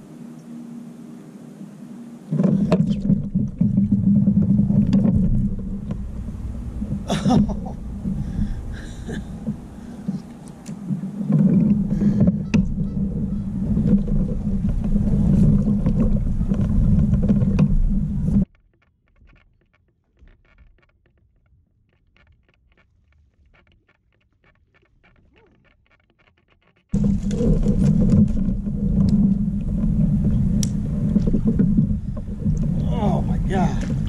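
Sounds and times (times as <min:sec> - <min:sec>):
wind buffeting microphone: 0:01.9 - 0:18.5, 0:27.0 - 0:34.0.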